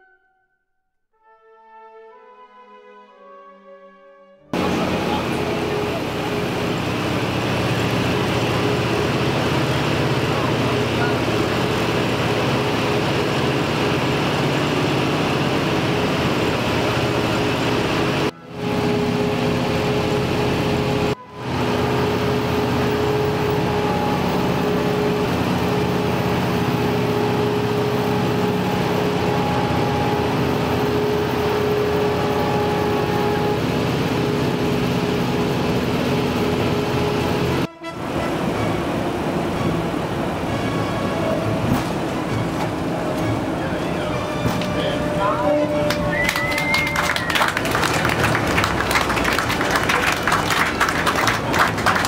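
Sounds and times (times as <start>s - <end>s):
propeller aircraft engines droning: 4.6s - 52.0s.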